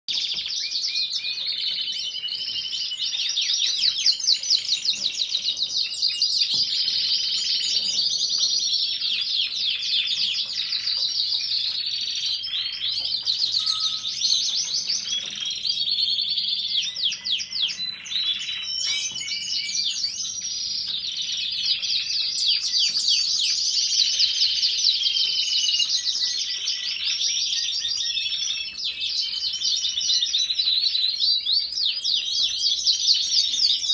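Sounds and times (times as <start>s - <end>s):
canaries trilling and chirping: 0.1s - 33.9s.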